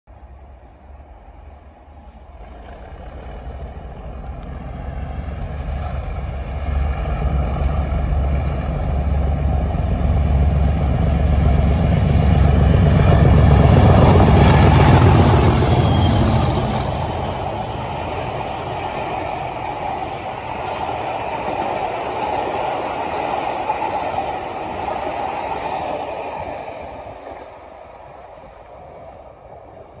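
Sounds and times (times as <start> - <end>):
train coaches rolling: 2.2 - 30.0
diesel locomotive engines thrashing: 3.2 - 19.6.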